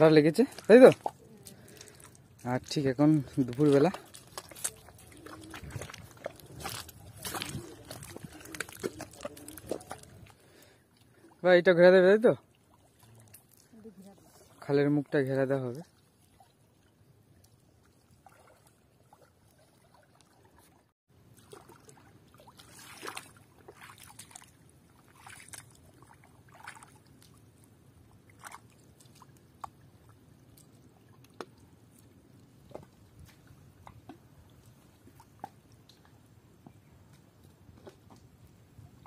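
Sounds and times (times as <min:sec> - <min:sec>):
shallow water sloshing: 0:00.0 - 0:36.4
small splashes: 0:03.2 - 0:11.4, 0:12.4 - 0:32.0.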